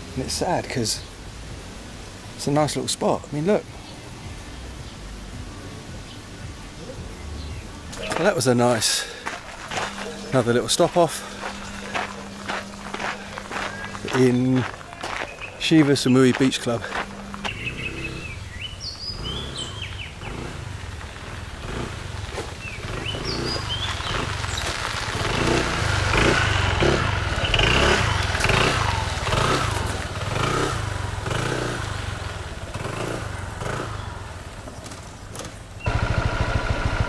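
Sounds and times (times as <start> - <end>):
road noise: 0.0 - 37.0
motorbike engine: 8.8 - 14.5, 16.6 - 37.0.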